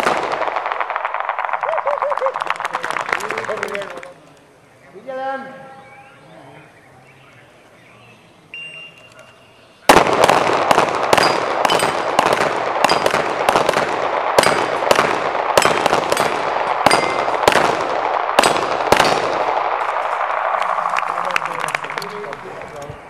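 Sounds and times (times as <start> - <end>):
shot timer beep: 8.5 - 9.2
handgun shots echoing: 9.9 - 19.5
bullets ringing on steel: 11.2 - 12.1, 12.8 - 13.2, 14.4 - 14.9, 15.6 - 17.4.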